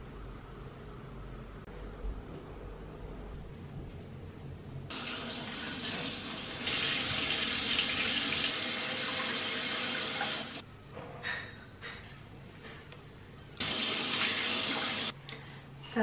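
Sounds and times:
tap water running into sink: 0:04.9 - 0:10.6, 0:13.6 - 0:15.1.

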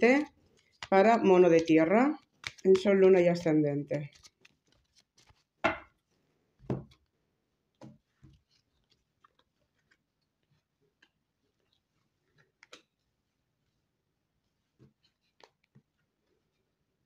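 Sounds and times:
cards tapping and clicking: 0:00.6 - 0:06.0, 0:12.4 - 0:12.9
dull thump on table: 0:06.7 - 0:06.9.

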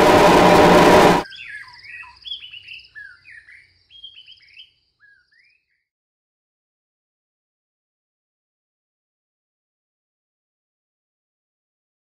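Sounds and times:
loud electronic drone: 0:00.0 - 0:01.2
songbirds singing: 0:01.2 - 0:05.9.

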